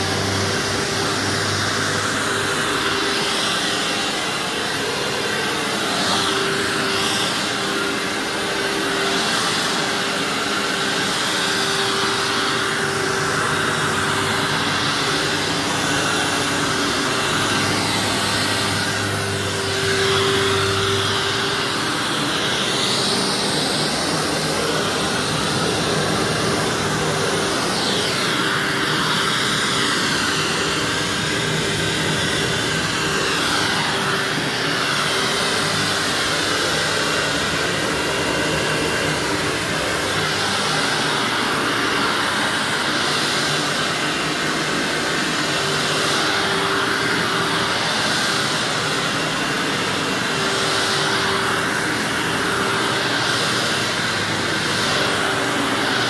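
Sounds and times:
vacuum cleaner running: 0:00.0 - 0:56.0.

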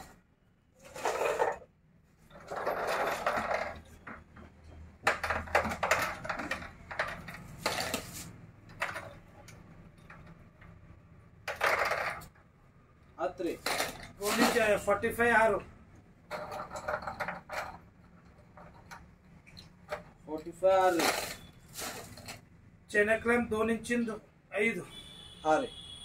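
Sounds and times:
metal fittings clinking and clattering: 0:02.3 - 0:04.2, 0:16.3 - 0:22.4.

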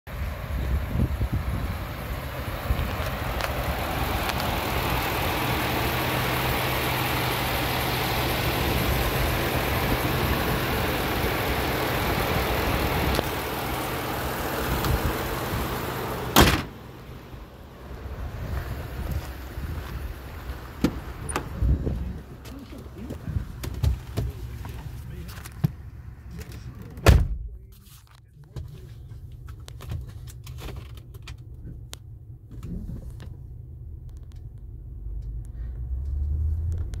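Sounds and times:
engine idling: 0:00.1 - 0:27.7
hood slamming shut: 0:16.3 - 0:16.8, 0:20.8 - 0:21.6, 0:27.0 - 0:27.5.

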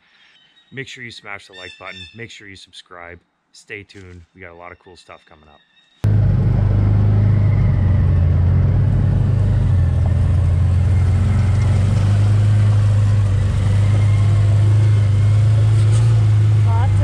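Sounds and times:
engine running with low drone: 0:06.0 - 0:17.0.

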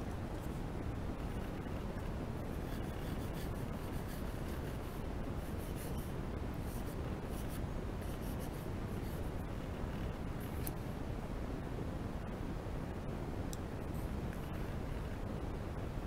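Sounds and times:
low background hum: 0:00.0 - 0:16.0
pencil scratching on paper: 0:02.4 - 0:09.4.

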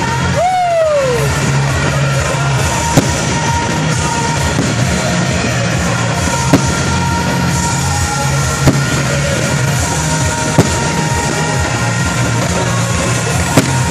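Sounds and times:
music: 0:00.0 - 0:13.9
firework shells bursting: 0:01.2 - 0:13.9.

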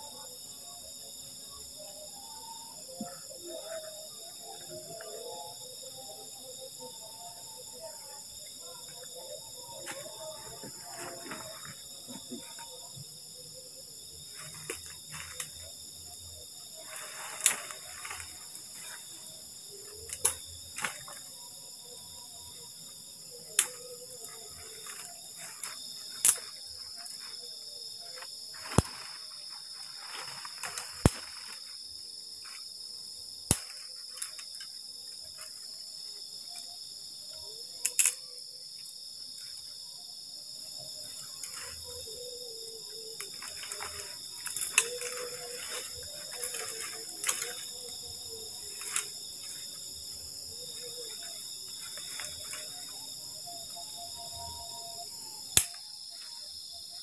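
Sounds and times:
crickets chirping: 0:00.0 - 0:57.0
sticks cracking and rustling: 0:14.3 - 0:15.7, 0:16.8 - 0:19.1, 0:19.8 - 0:21.2, 0:23.6 - 0:27.2, 0:28.2 - 0:29.2, 0:30.0 - 0:31.7, 0:33.5 - 0:34.7, 0:37.8 - 0:38.2, 0:43.1 - 0:49.8, 0:50.7 - 0:52.9, 0:55.6 - 0:55.8.

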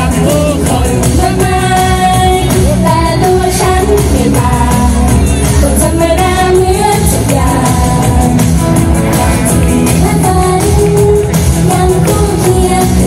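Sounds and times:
female group singing pop: 0:00.0 - 0:13.0
steady beat and bass: 0:00.0 - 0:13.0.

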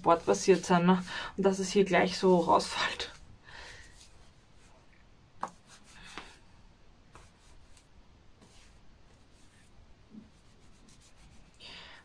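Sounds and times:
hands rubbing and rustling: 0:03.8 - 0:06.4, 0:07.1 - 0:11.6.

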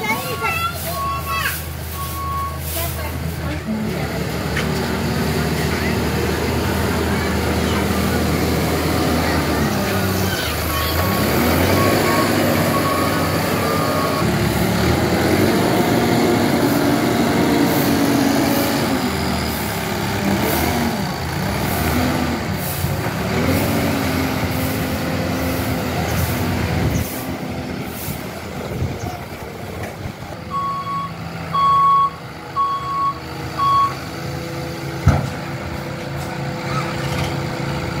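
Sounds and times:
diesel engine under load: 0:00.0 - 0:38.0
reversing alarm beeping: 0:00.2 - 0:02.7, 0:10.7 - 0:14.3, 0:30.5 - 0:34.0.

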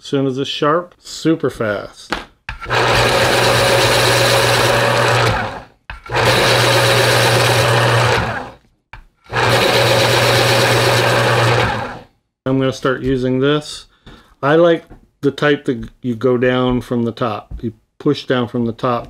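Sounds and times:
electric pencil sharpener grinding: 0:02.6 - 0:08.6, 0:09.3 - 0:12.0.

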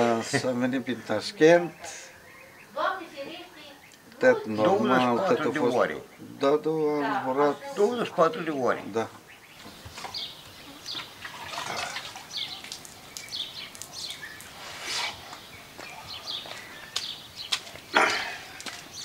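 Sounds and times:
birds chirping: 0:00.0 - 0:19.0
water splashing and dripping: 0:08.1 - 0:19.0.

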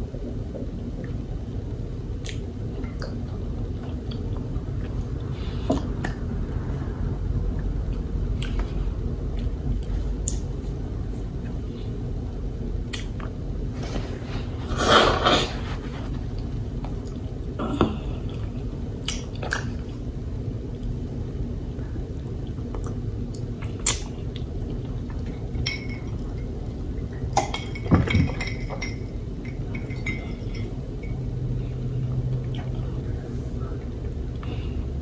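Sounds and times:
low background hum: 0:00.0 - 0:35.0
paper napkin rustling: 0:13.8 - 0:16.4
tableware clicking and clinking: 0:27.4 - 0:31.2.

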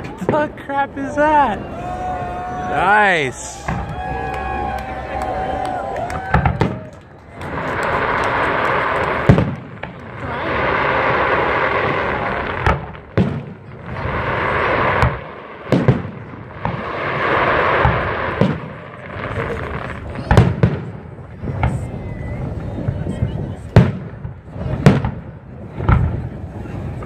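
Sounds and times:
firework shells booming: 0:06.1 - 0:21.9, 0:23.7 - 0:26.4
fireworks hiss and crackle: 0:06.2 - 0:27.0.

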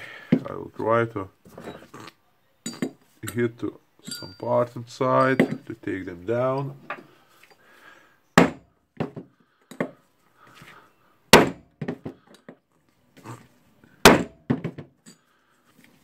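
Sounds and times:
light knocks and clinks: 0:02.6 - 0:04.6, 0:05.2 - 0:05.7.

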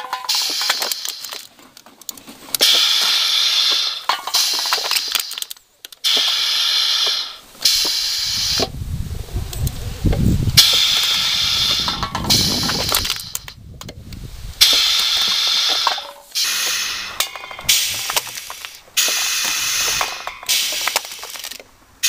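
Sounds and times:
compressed air hissing: 0:00.2 - 0:01.5, 0:02.6 - 0:08.9, 0:09.8 - 0:13.5, 0:14.2 - 0:21.5
low rumble with clicks: 0:08.6 - 0:14.6
sharp clicks: 0:09.5 - 0:21.7.

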